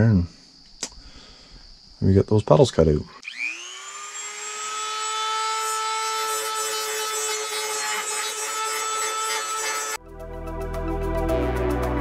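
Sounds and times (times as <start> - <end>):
electric grinder grinding metal: 3.2 - 10.0.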